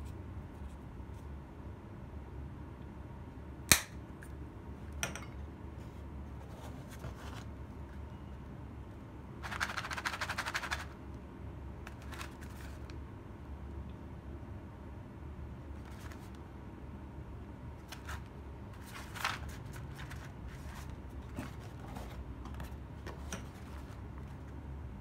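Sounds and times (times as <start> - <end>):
peppercorns rattling in box: 9.4 - 11.0.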